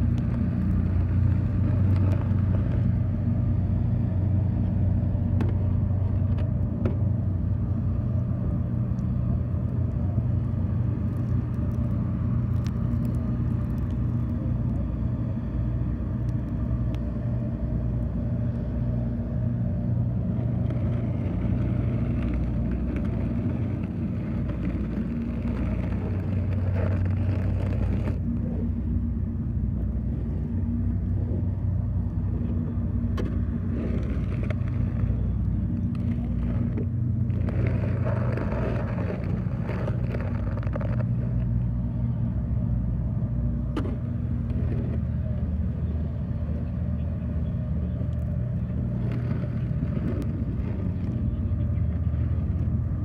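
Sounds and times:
vehicle engine droning: 0.0s - 53.0s
snow pusher scraping pavement: 20.2s - 28.4s, 33.0s - 41.7s, 48.6s - 52.0s.

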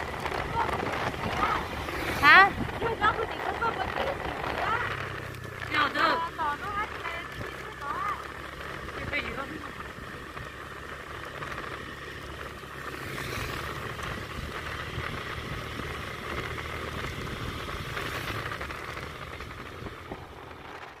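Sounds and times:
wind noise: 0.0s - 5.0s
motorbike engine cruising: 0.0s - 21.0s
road noise: 0.0s - 21.0s.

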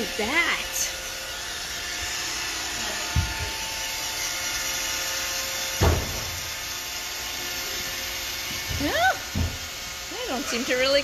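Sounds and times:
robot vacuum whirring: 0.0s - 11.0s
dull knocks: 8.6s - 9.6s.

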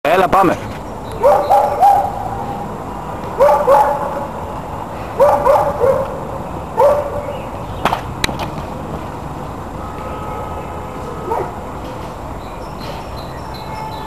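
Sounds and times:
dog barking: 1.2s - 2.3s, 3.4s - 4.3s, 5.2s - 6.2s, 6.8s - 7.3s, 11.2s - 11.6s.

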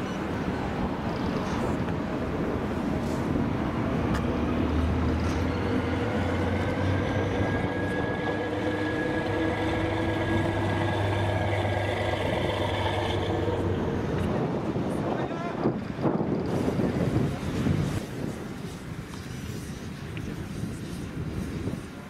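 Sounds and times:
diesel locomotive engine humming: 0.0s - 19.2s.

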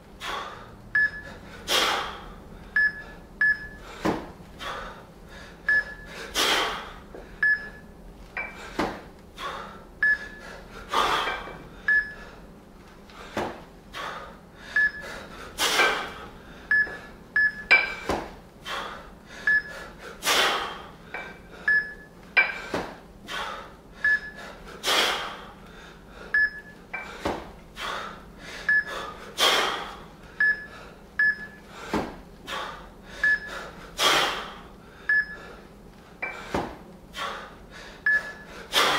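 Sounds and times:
man breathing hard: 0.1s - 7.4s, 8.4s - 17.2s, 17.9s - 38.9s
forceful exhale: 1.5s - 2.4s, 6.1s - 7.0s, 18.7s - 21.3s, 24.8s - 25.5s, 31.8s - 34.6s, 38.5s - 38.9s
kettlebells knocking: 17.6s - 18.4s, 22.4s - 23.0s.

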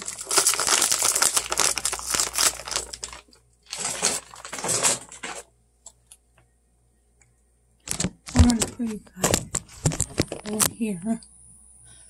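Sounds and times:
plastic packaging crinkling: 0.0s - 5.5s.

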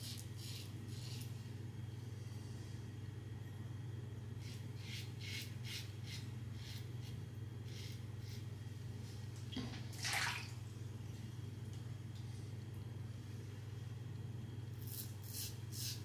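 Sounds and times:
razor scraping stubble: 0.0s - 1.4s, 4.4s - 8.5s, 14.8s - 16.0s
water splash: 9.6s - 10.6s.

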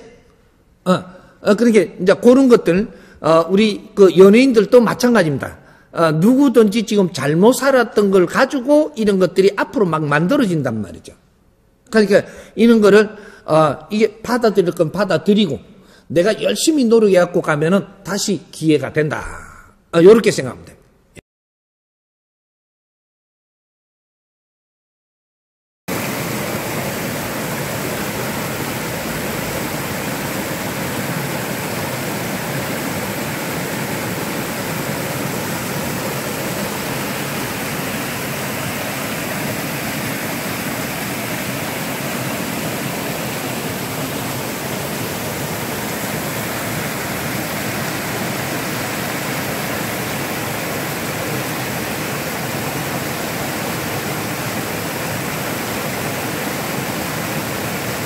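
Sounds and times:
small waterfall rushing: 25.9s - 58.0s.

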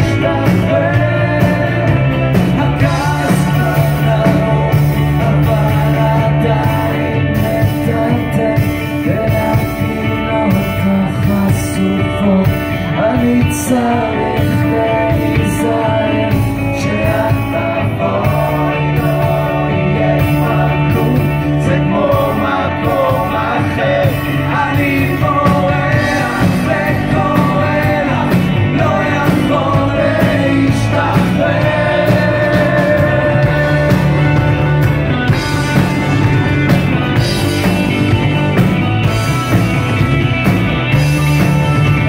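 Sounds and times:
man singing into microphone: 0.0s - 34.6s
drums: 0.0s - 42.0s
electric guitar: 0.0s - 42.0s.

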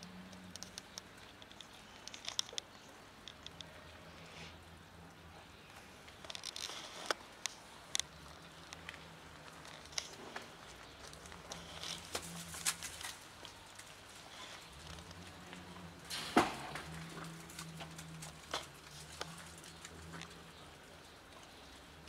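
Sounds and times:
cat crunching dry kibble: 6.1s - 20.7s.

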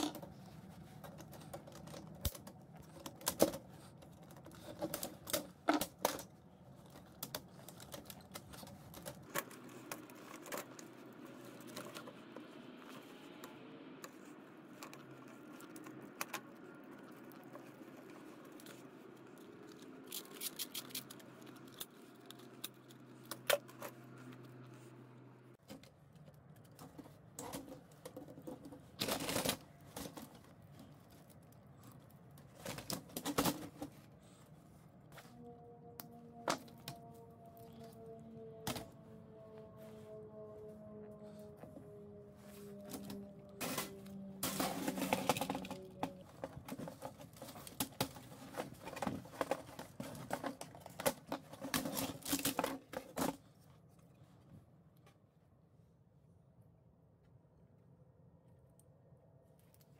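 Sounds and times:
plastic and metal parts clattering: 0.0s - 13.1s, 25.6s - 34.4s, 42.7s - 53.8s.

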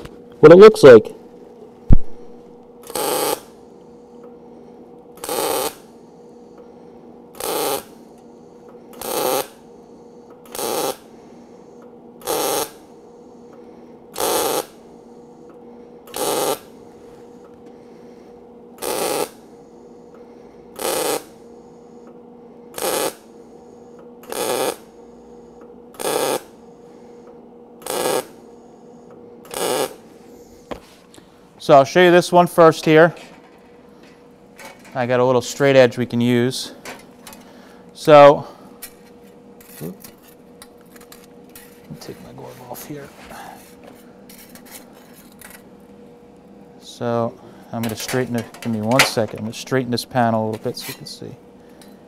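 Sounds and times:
welder low hum: 0.0s - 52.0s
welding arc crackle: 2.8s - 3.6s, 5.2s - 5.9s, 7.4s - 8.0s, 9.0s - 9.6s, 10.5s - 11.0s, 12.2s - 12.8s, 14.2s - 14.8s, 16.1s - 16.7s, 18.8s - 19.4s, 20.8s - 21.4s, 22.8s - 23.2s, 24.3s - 24.9s, 26.0s - 26.5s, 27.8s - 28.4s, 29.5s - 30.0s.

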